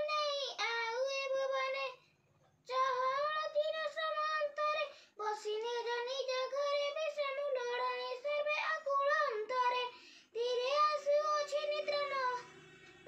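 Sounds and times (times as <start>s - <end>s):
boy singing in high voice: 0.0s - 2.0s, 2.6s - 12.6s.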